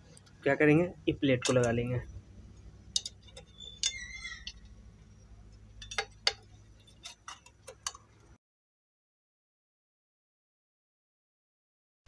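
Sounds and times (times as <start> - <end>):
metal clicks and taps: 2.9 - 4.7, 5.5 - 8.2.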